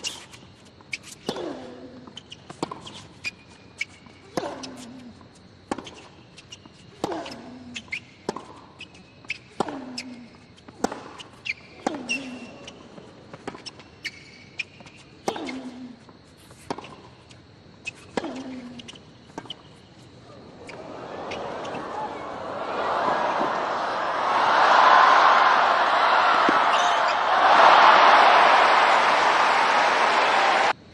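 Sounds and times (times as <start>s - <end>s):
shoes squeaking on court: 0.0s - 22.5s, 25.9s - 28.9s
tennis racket hitting ball: 4.3s - 5.0s, 7.0s - 7.5s, 10.6s - 12.4s, 26.2s - 27.8s.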